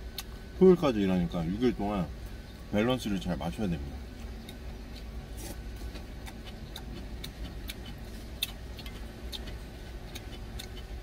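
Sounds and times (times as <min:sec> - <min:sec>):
low steady hum: 0:00.0 - 0:11.0
man chewing with mouth smacks: 0:04.1 - 0:11.0.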